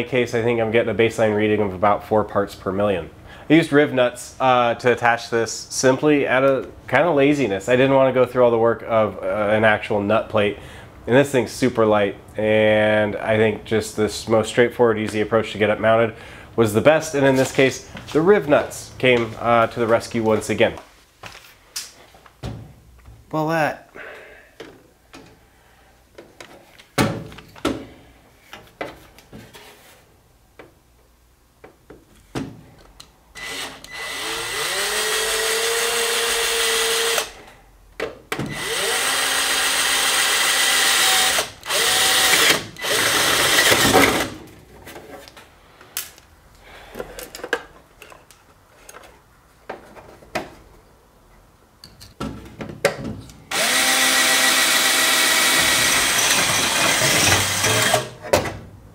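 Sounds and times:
cordless drill motor whine: 0:33.4 - 0:37.3, 0:38.5 - 0:43.8, 0:53.5 - 0:58.1.

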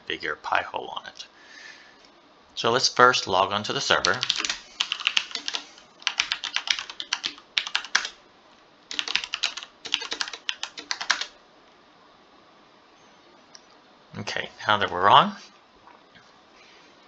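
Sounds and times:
keyboard typing clicks: 0:04.0 - 0:08.1, 0:08.9 - 0:11.3.

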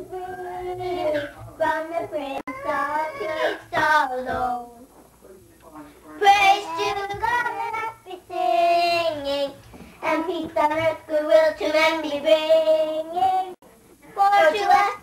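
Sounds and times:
young children singing: 0:00.0 - 0:04.7, 0:06.2 - 0:13.6.

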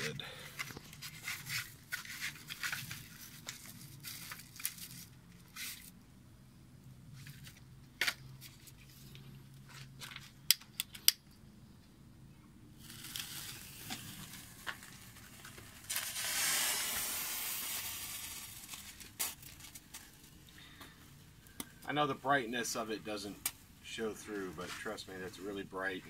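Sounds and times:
loud rushing hiss of burning thermite: 0:12.8 - 0:20.4
fizzing hiss: 0:15.8 - 0:18.9.

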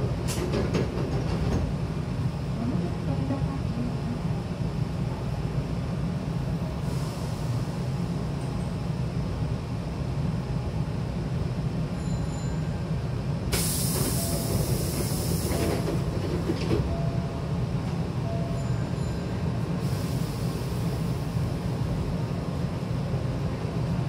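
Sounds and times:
train humming: 0:00.0 - 0:24.0
train doors hissing air: 0:06.8 - 0:08.0, 0:13.5 - 0:16.9, 0:19.7 - 0:21.5.

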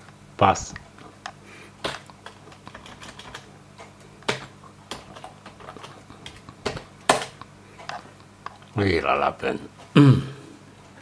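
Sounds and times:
typing on keyboard: 0:01.8 - 0:03.5.

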